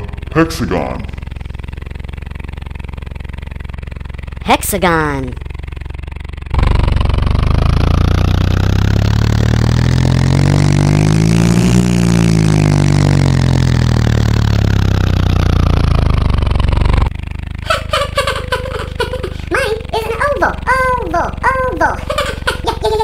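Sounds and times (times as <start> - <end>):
monster truck engine: 0.0 - 23.0
high giggly voice: 17.7 - 23.0.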